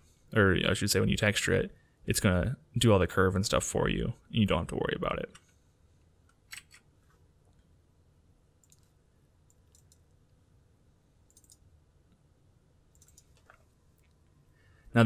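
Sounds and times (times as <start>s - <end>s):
computer mouse clicks: 8.6s - 10.1s, 11.3s - 11.7s, 12.9s - 14.2s.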